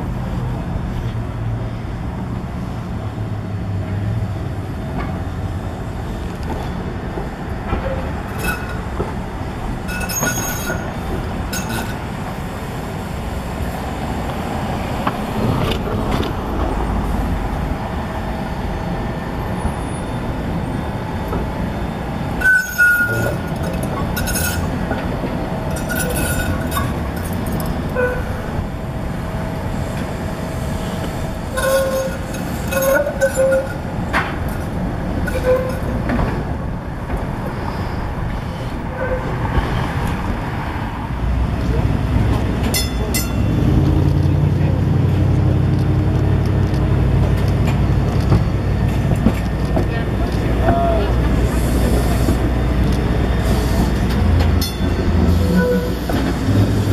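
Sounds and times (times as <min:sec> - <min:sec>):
light rail vehicle rumbling: 0:00.0 - 0:56.9
high-pitched wheel squeals: 0:09.9 - 0:10.9, 0:22.4 - 0:24.8, 0:31.5 - 0:33.9, 0:35.3 - 0:36.0, 0:54.6 - 0:56.2.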